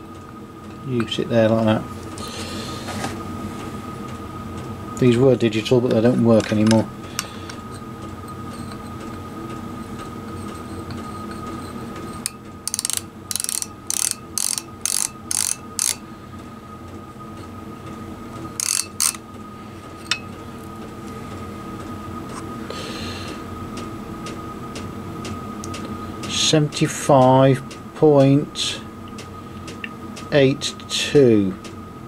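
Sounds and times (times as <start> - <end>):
micrometer ratchet clicking: 12.2 - 16.0, 18.6 - 19.2.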